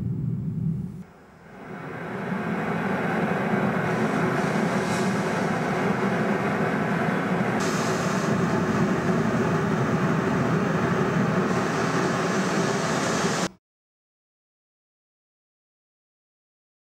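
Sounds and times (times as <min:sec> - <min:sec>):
loud steady rumbling: 0:00.0 - 0:13.5
hiss: 0:01.4 - 0:13.6.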